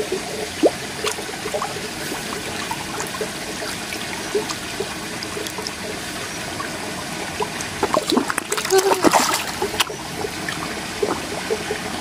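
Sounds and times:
water trickling: 0:00.0 - 0:12.0
fish splashing at surface: 0:07.4 - 0:11.6.

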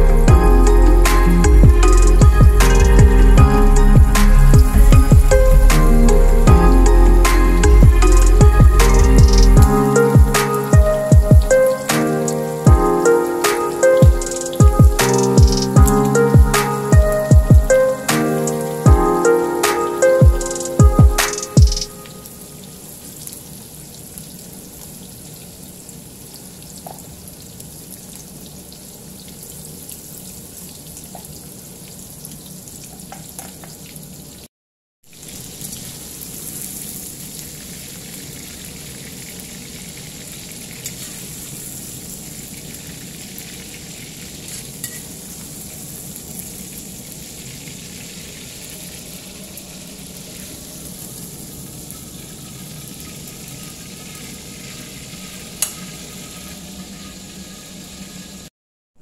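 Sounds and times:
food deep-frying in oil: 0:21.3 - 0:34.5, 0:35.1 - 0:58.5.

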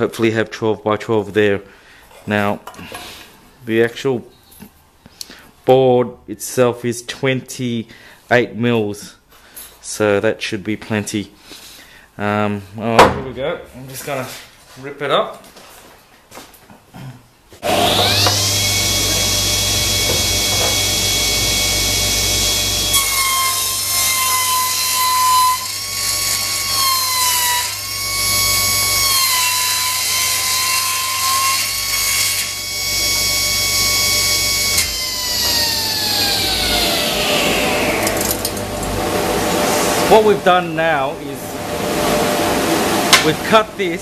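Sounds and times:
saw blade ripping wood: 0:17.6 - 0:39.0
table saw whine: 0:17.6 - 0:44.0.

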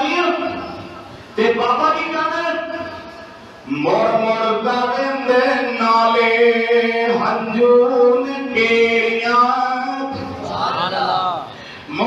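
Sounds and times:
man chanting: 0:03.7 - 0:12.0.

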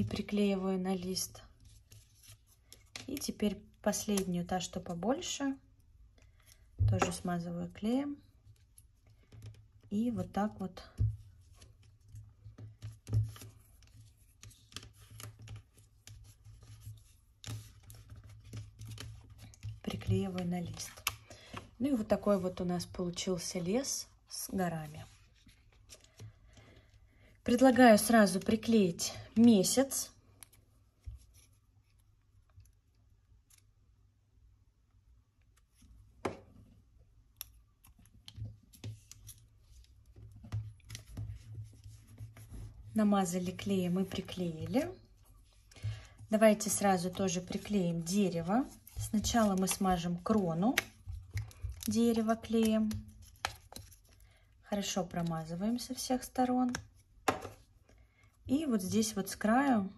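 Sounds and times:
paper rustling and scratching: 0:11.4 - 0:22.7, 0:45.4 - 0:54.2.

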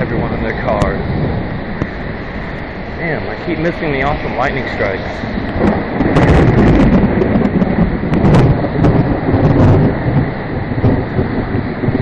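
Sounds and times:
heavy rain: 0:00.0 - 0:12.0
thunder rumbling: 0:00.0 - 0:12.0.

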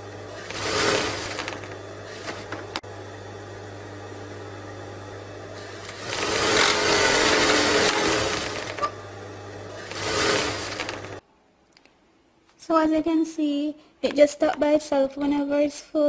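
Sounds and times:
sewing machine motor humming: 0:00.0 - 0:11.2.

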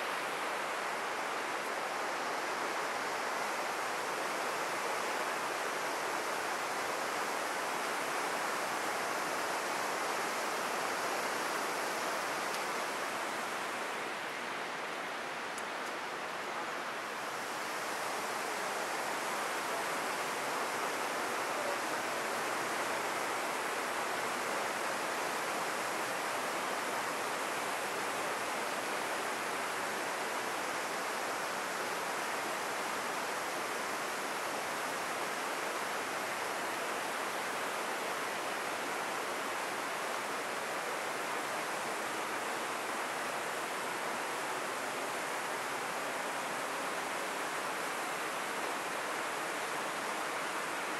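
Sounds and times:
river water rushing: 0:00.0 - 0:50.9.

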